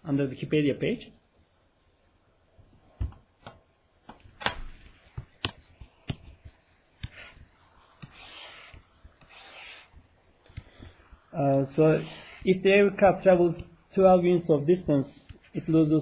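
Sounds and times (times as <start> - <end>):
pen tapping on screen: 3.0 - 7.3
pen tip scratching strokes: 4.9 - 13.9.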